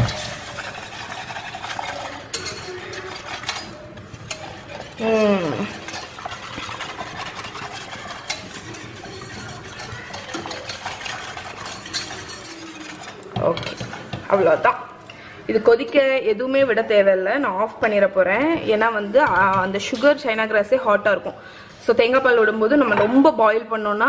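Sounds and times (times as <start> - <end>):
whisk scraping metal saucepan: 0.0 - 14.9.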